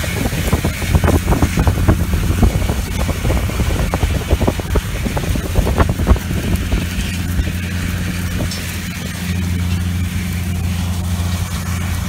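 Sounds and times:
irregular crackles and knocks: 0:00.0 - 0:12.0
tractor diesel engine droning: 0:00.0 - 0:12.0.

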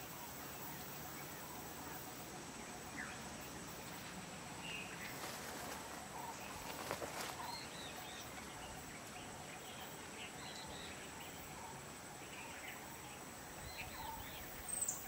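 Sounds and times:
background hiss: 0:00.0 - 0:15.0
small birds chirping: 0:00.0 - 0:15.0
crackling rustle: 0:03.7 - 0:10.2.

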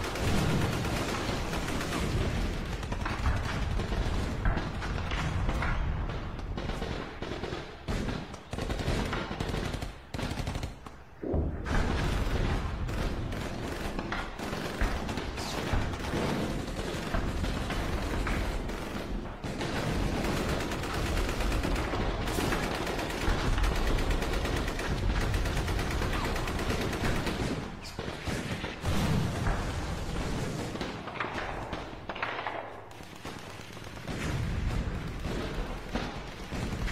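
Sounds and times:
automatic gunfire: 0:00.0 - 0:10.8, 0:12.0 - 0:29.6.

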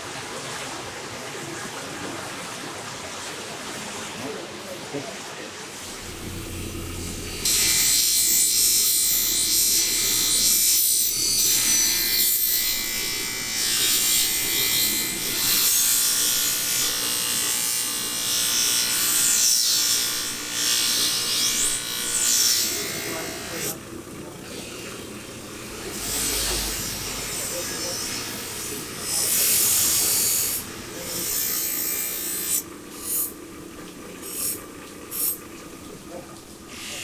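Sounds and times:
metal hissing on grinder wheel: 0:05.9 - 0:17.3
grinder motor hum: 0:05.9 - 0:33.4.

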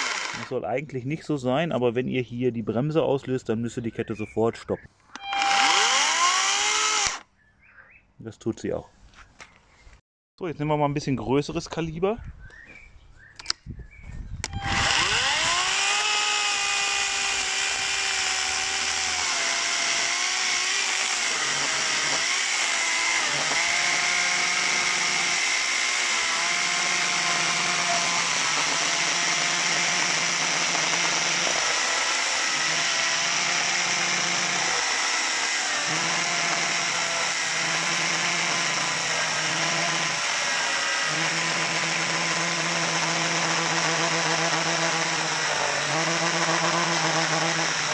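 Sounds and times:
electric chainsaw cutting log: 0:00.0 - 0:00.5, 0:05.2 - 0:07.2, 0:14.4 - 0:47.9.

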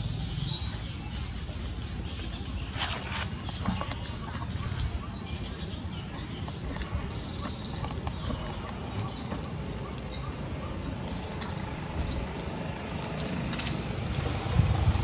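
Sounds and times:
small birds chirping: 0:00.0 - 0:15.0
rustles in dry leaf litter: 0:01.7 - 0:05.0
steady low rumble: 0:03.4 - 0:15.0.

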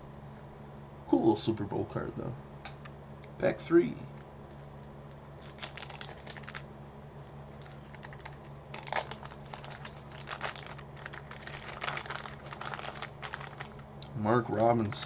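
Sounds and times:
steady low hum: 0:00.0 - 0:15.0
wax paper wrapper crinkling: 0:04.2 - 0:15.0.

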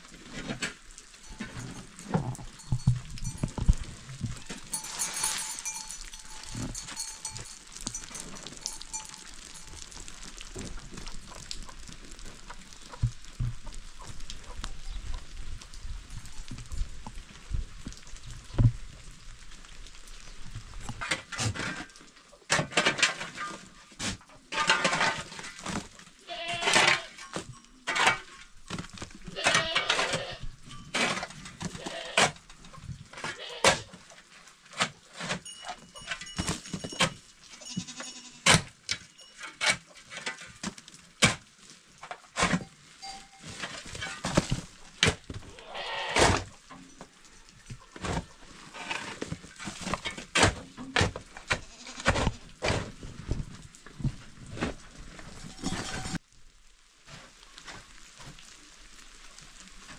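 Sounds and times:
goats bleating: 0:26.2 - 0:27.2, 0:29.3 - 0:30.4, 0:31.7 - 0:32.3, 0:45.5 - 0:46.4, 0:51.6 - 0:52.2.

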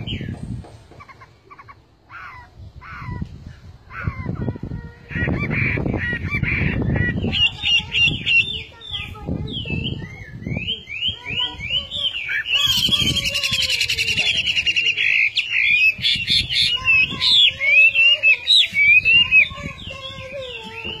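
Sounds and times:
bird singing whistled phrases: 0:06.8 - 0:21.0.

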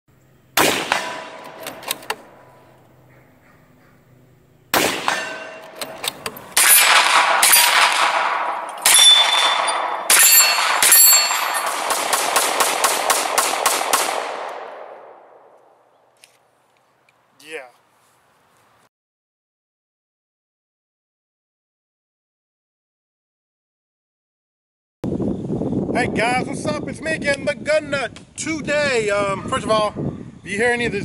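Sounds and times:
gunshots with ringing tails: 0:00.6 - 0:02.7, 0:04.7 - 0:15.6.

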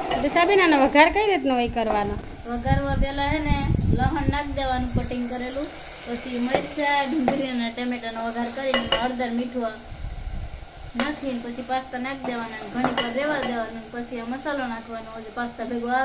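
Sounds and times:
vegetables sizzling in oil: 0:00.0 - 0:16.0
metal spoon knocking on pan: 0:06.4 - 0:07.6, 0:08.7 - 0:09.2, 0:12.3 - 0:13.7.

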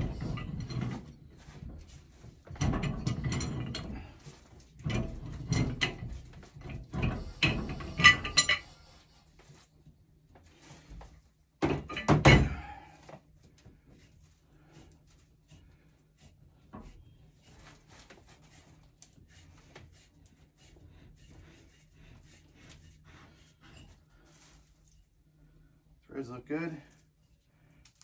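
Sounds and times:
metal scraping and creaking: 0:00.0 - 0:09.6, 0:14.7 - 0:25.1.

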